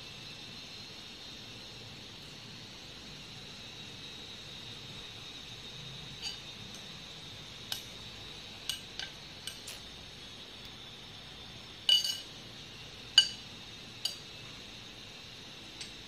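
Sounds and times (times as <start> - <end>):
spoon clinking against glass bowl: 11.9 - 12.3, 13.1 - 13.4.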